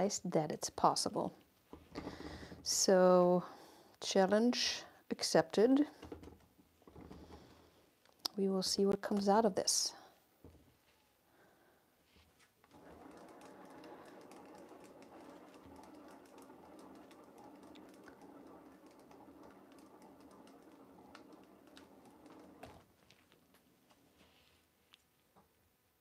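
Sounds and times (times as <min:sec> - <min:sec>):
canvas spinner whirring: 0:01.7 - 0:02.8, 0:06.0 - 0:07.7, 0:12.6 - 0:24.0.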